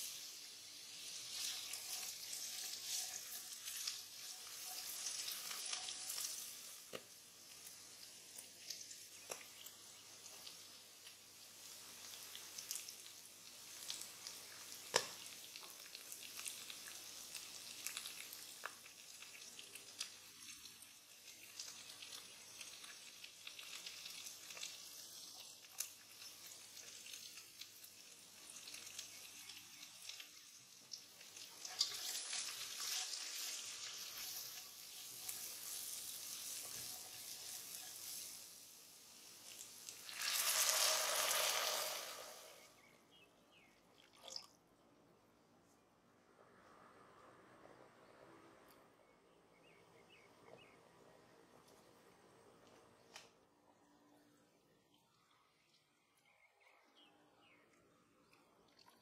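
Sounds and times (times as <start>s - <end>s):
vegetables sizzling in oil: 0.0s - 42.9s
water poured into hot pot: 11.3s - 42.8s, 43.9s - 44.6s.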